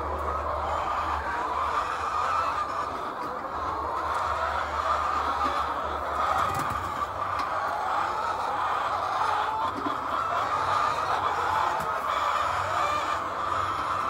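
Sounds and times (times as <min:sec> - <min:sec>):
hens clucking: 0:00.0 - 0:14.0.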